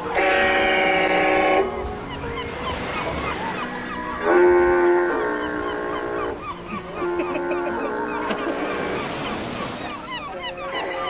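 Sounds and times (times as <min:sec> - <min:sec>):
model ship horn blast: 0:00.1 - 0:01.7, 0:04.2 - 0:05.4.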